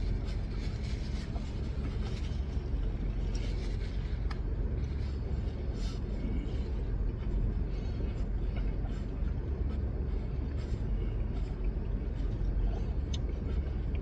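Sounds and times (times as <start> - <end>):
car engine idling: 0.0 - 14.0.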